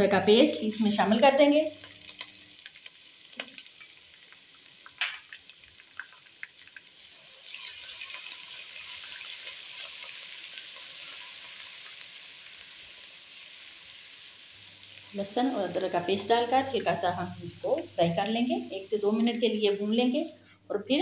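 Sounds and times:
onions sizzling in hot oil: 0.0 - 20.3.

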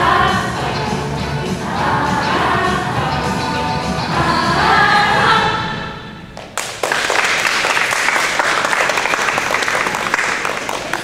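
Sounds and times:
audience applause: 6.5 - 11.0.

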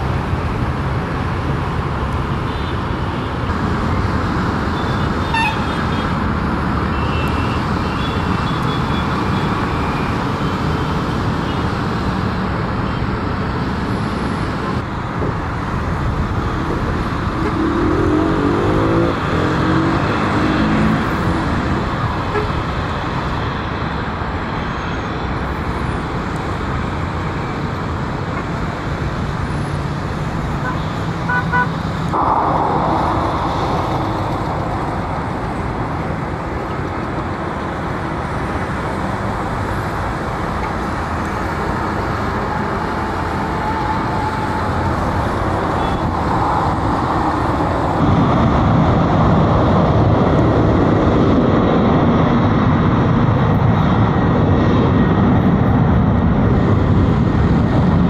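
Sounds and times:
road traffic: 0.0 - 58.0
jet engines roaring: 14.5 - 58.0.

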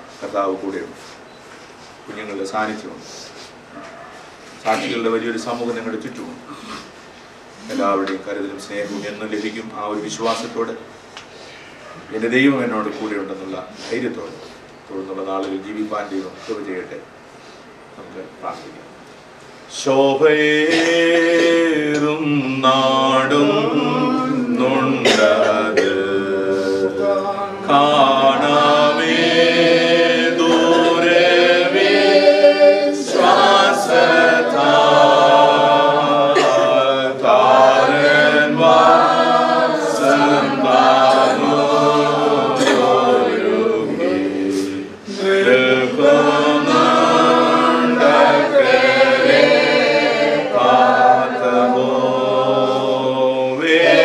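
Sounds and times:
group chanting a prayer: 19.7 - 54.0.

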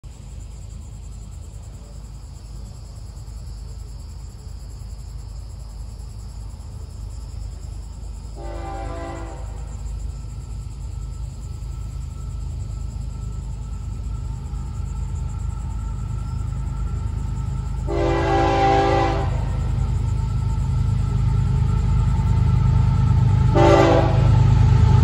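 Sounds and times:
train rumble: 0.0 - 25.0
distant locomotive air horn: 8.4 - 9.8, 17.8 - 19.9, 23.5 - 25.0.

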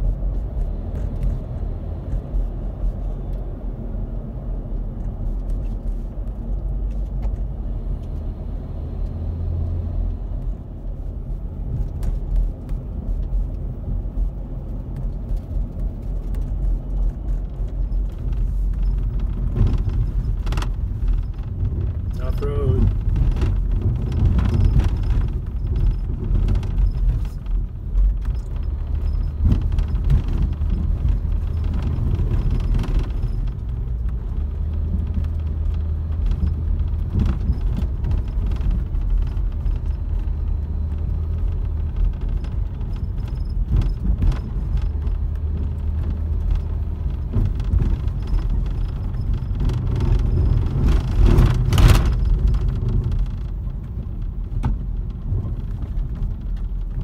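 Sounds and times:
engine and tyre rumble: 0.0 - 57.0
knocks and rattles over bumps: 9.5 - 57.0.

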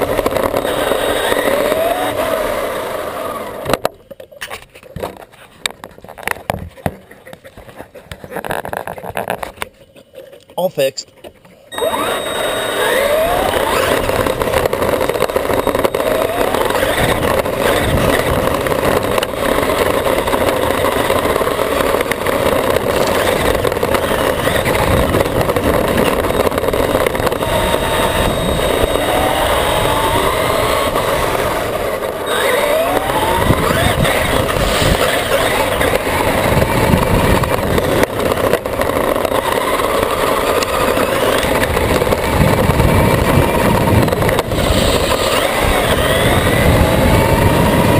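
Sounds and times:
electric motor whine: 0.0 - 3.9, 11.7 - 47.9
drivetrain and tyres rattling: 0.0 - 47.9.

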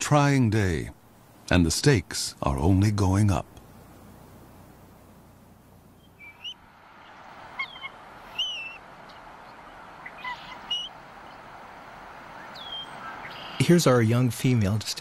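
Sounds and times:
faint steady hiss: 0.0 - 15.0
eagles chirping: 5.8 - 15.0.

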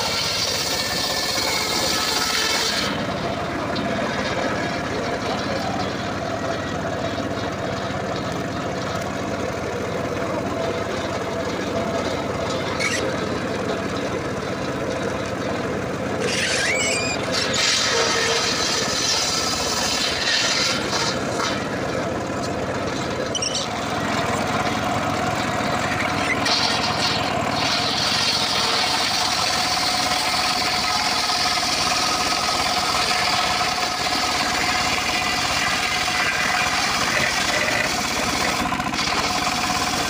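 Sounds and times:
saw blade hissing through wood: 0.0 - 3.0
sawmill engine running: 0.0 - 40.0.

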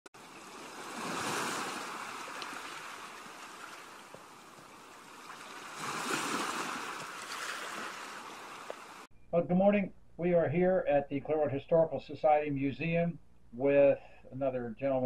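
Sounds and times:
ocean waves washing in: 0.2 - 9.1.

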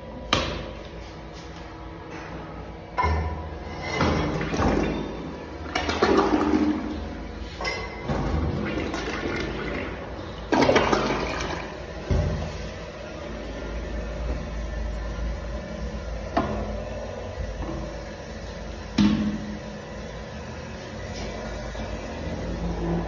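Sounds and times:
toilet flushing: 3.0 - 14.0, 16.0 - 23.0.

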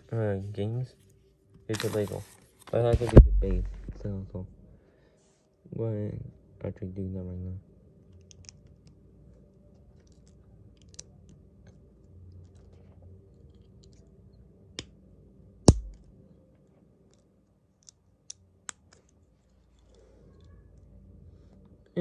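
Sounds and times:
loud knock: 3.0 - 4.1.

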